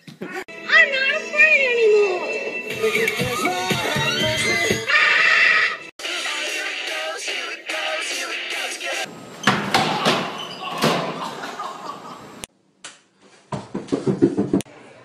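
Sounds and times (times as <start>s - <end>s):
people falling onto gym floor: 9.5s - 11.4s
feet pounding up stairs: 13.5s - 14.7s.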